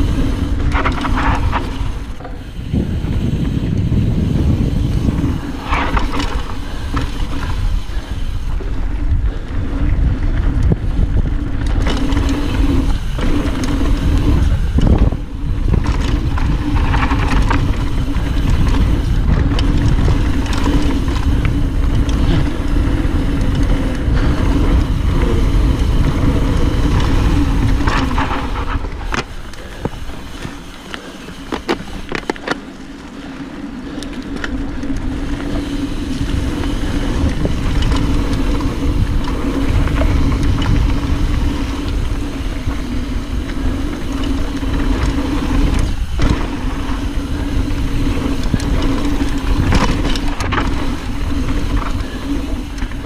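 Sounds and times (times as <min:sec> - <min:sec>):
wind rush: 0:00.0 - 0:32.0, 0:34.6 - 0:53.0
bike rattling over bumps: 0:00.0 - 0:53.0
bike tyre rumble on dirt: 0:00.0 - 0:53.0.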